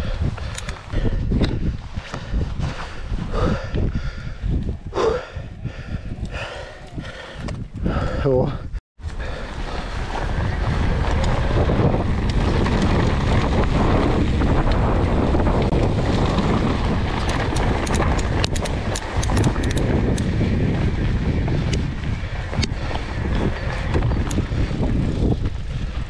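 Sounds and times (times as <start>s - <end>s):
bike riding rumble on trail: 0.0s - 26.0s
wind buffeting microphone: 0.0s - 26.0s
sharp clicks and rattles: 0.4s - 1.6s, 15.6s - 20.3s, 22.5s - 25.4s.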